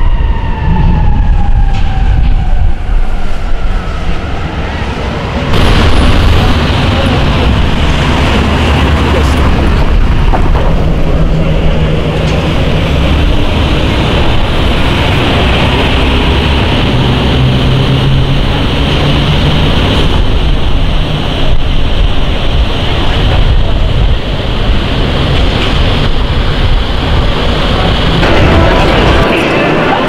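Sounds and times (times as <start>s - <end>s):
traffic rumble: 0.0s - 30.0s
wind buffeting microphone: 0.0s - 30.0s.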